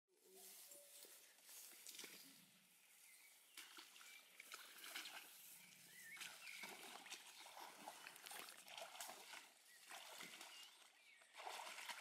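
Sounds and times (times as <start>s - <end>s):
grass rustling underfoot: 0.2s - 3.9s.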